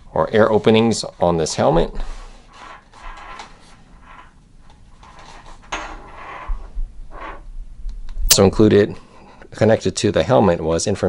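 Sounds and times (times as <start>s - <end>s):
plastic helmet rustling and scraping: 0.4s - 7.5s.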